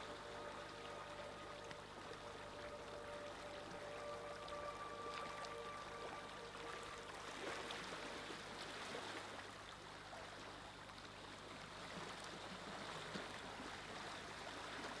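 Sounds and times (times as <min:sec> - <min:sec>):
river water rushing: 0:00.0 - 0:09.7.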